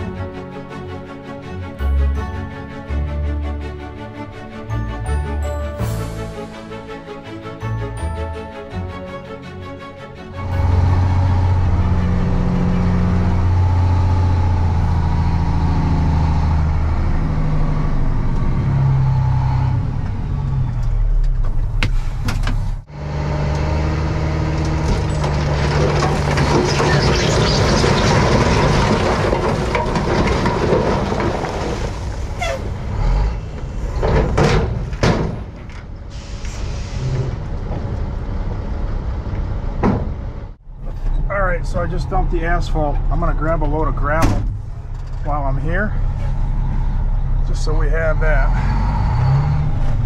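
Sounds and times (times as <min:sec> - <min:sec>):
dump truck engine running: 0:00.0 - 0:50.0
rattling rush of broken asphalt: 0:23.8 - 0:36.1.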